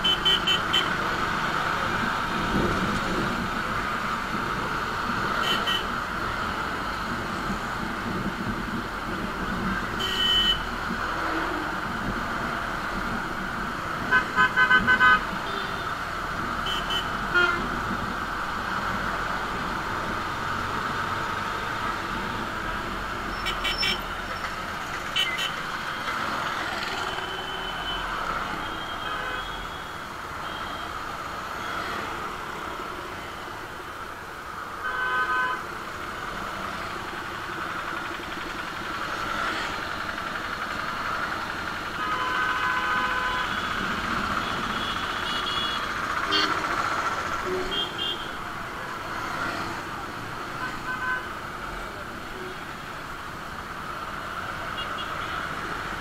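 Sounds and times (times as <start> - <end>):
wind and road noise: 0.0 - 56.0
vehicle horns tooting: 5.4 - 5.9, 10.0 - 10.7, 27.2 - 31.0, 42.0 - 46.7, 47.4 - 48.4, 50.6 - 51.3, 54.8 - 55.6.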